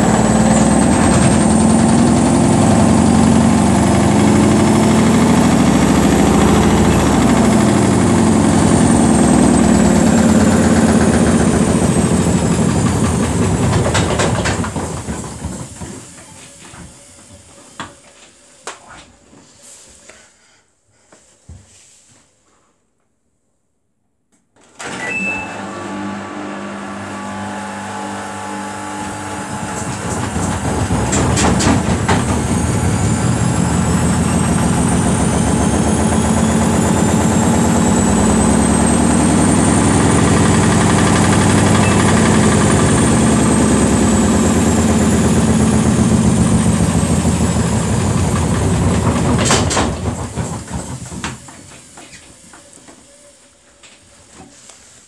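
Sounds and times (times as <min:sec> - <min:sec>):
washing machine knocking: 0:00.0 - 0:16.2, 0:28.5 - 0:52.0
washing machine spinning: 0:00.0 - 0:17.9, 0:24.8 - 0:52.7.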